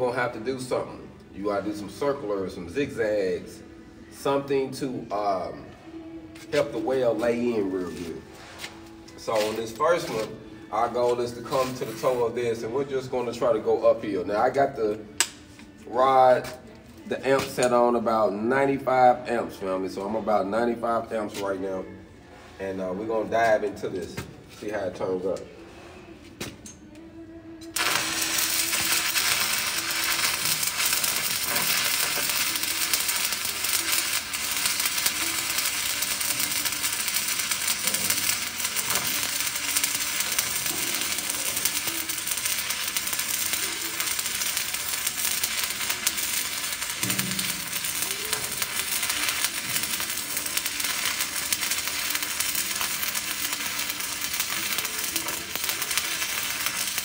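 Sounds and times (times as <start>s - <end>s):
welding arc crackling: 6.4s - 12.4s, 27.7s - 57.0s.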